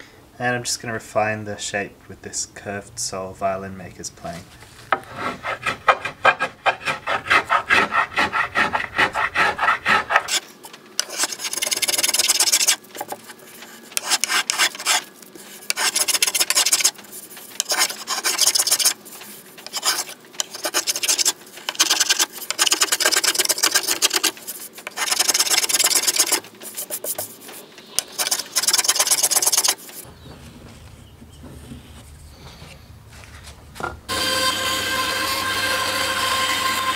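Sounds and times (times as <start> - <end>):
plane shaving wood: 4.9 - 30.1, 34.1 - 36.9.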